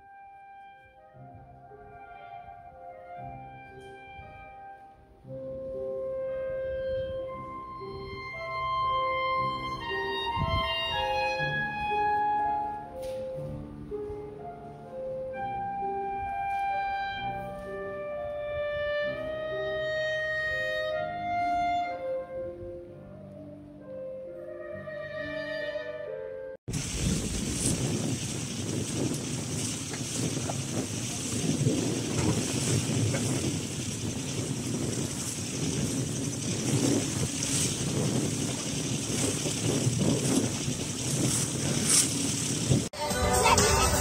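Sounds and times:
instrumental background music: 0.0s - 26.6s, 43.0s - 44.0s.

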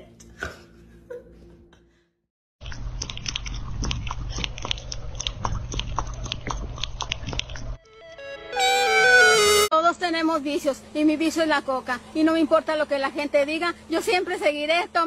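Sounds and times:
kitten crunching dry kibble: 2.7s - 7.6s.

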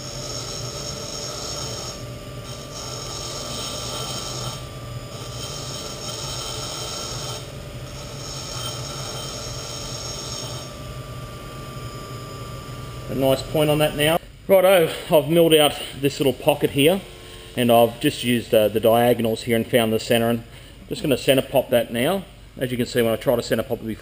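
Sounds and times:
metal grinding on stone: 0.0s - 10.8s
grinder motor humming: 0.0s - 14.2s.

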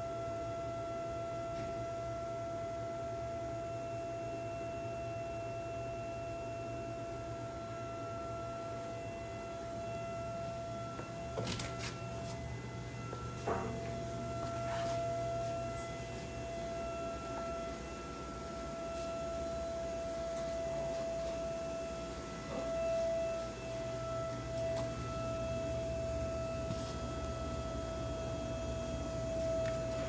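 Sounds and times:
machinery high whine: 0.0s - 30.0s
low hum: 7.2s - 30.0s.

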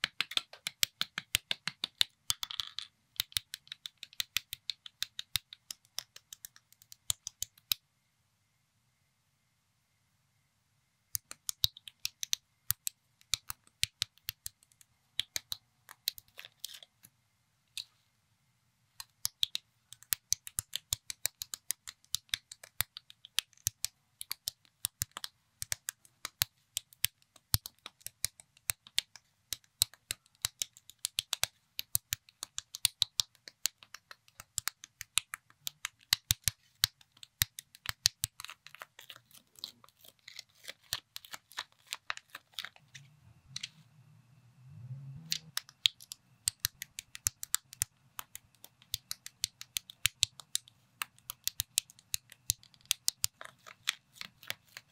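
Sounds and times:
plastic bricks clicking together: 0.0s - 7.8s, 45.3s - 54.9s.

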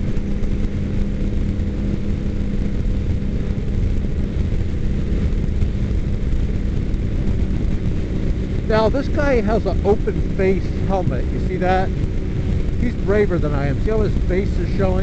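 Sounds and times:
motorcycle engine droning: 0.0s - 15.0s
wind buffeting microphone: 0.0s - 15.0s.

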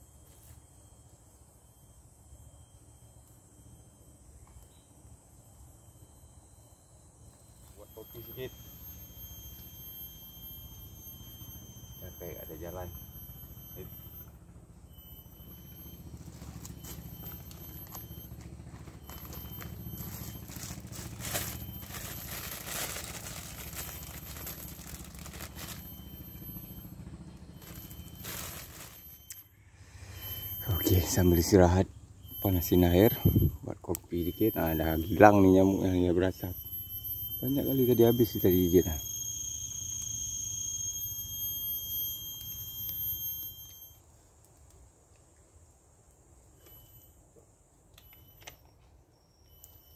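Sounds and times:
high-pitched insect whine: 0.0s - 49.9s
low hum: 0.1s - 44.0s
packets crinkling: 19.0s - 26.2s, 27.6s - 29.1s.

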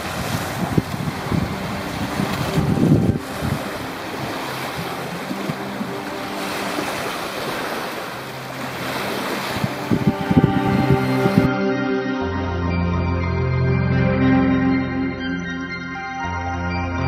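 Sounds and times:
waves breaking on sandy beach: 0.0s - 11.5s
wind on microphone: 0.0s - 11.5s
music: 0.0s - 17.0s.

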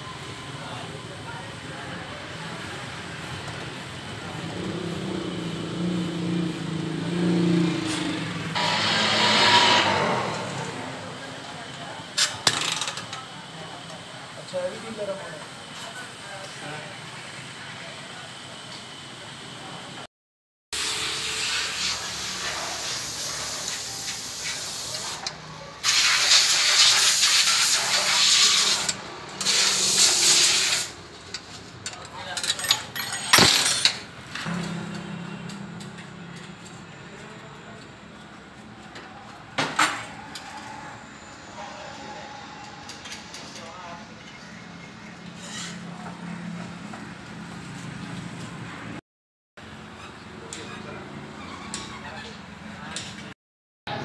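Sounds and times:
bench grinder motor hum: 8.0s - 11.2s
loud hissing bursts: 20.8s - 31.0s.

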